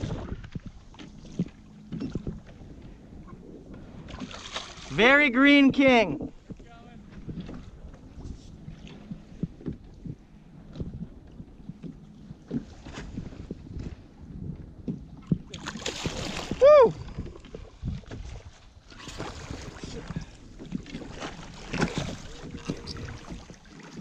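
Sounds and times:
small knocks against hull: 0.0s - 2.6s
seawater splashing around kayak: 0.0s - 24.0s
wind on microphone: 0.0s - 24.0s.

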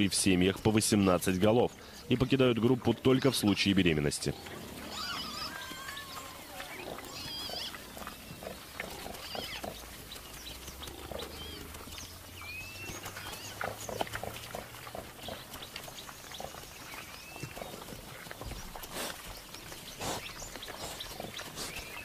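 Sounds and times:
grass being cropped and chewed: 0.0s - 22.0s
warthog grunts: 2.9s - 9.8s, 10.8s - 12.0s
high-pitched calls: 4.8s - 7.7s.

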